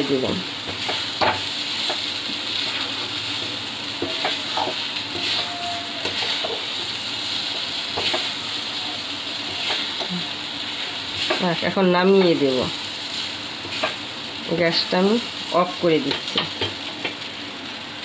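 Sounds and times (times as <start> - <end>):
halwa sizzling in a pan: 0.0 - 18.0
metal spatula scraping a pan: 4.0 - 6.6, 9.4 - 10.1.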